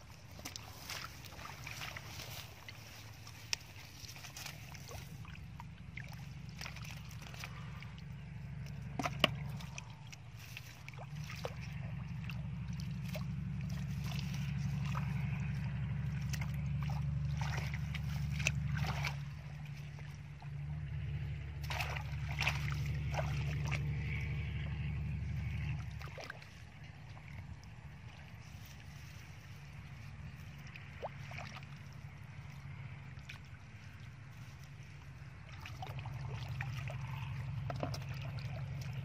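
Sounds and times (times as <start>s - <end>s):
splashing in muddy water: 0.0s - 39.0s
steady low rumble: 0.0s - 39.0s.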